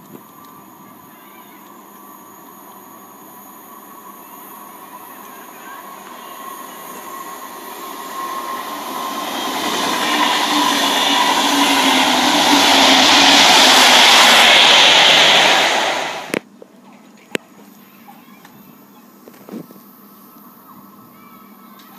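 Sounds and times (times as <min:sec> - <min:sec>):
rail noise: 0:00.0 - 0:16.4
locomotive engine hum: 0:01.8 - 0:16.4
diesel train passing: 0:01.9 - 0:16.4.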